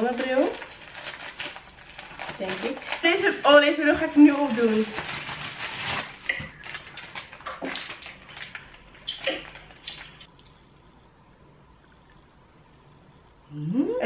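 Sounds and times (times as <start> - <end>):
packaging rustling: 0.0 - 10.3.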